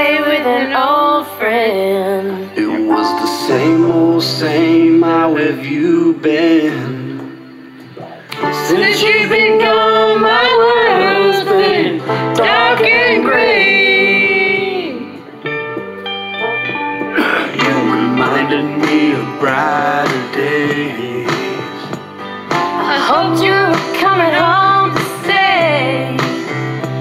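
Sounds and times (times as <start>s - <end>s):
country song singing over guitar: 0.0s - 7.4s, 8.3s - 15.6s, 17.2s - 27.0s.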